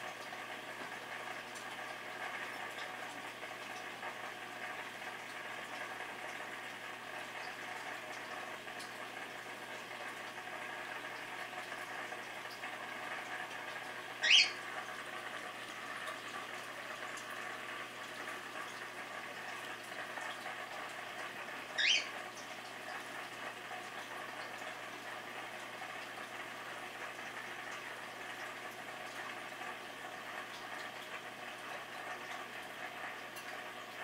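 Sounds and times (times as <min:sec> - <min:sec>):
aquarium water bubbling hiss: 0:00.0 - 0:34.0
short high rising squeaks: 0:14.2 - 0:14.6.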